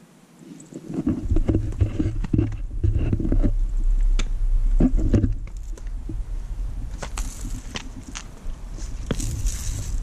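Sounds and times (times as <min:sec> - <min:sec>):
wind noise on microphone: 0:00.7 - 0:10.0
camera handling knocks and rustles: 0:00.8 - 0:03.6.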